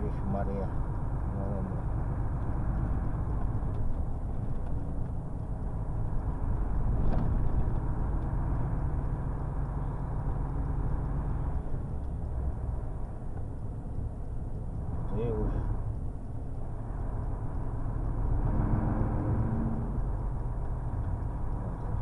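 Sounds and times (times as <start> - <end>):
truck diesel engine rumbling: 0.0 - 22.0.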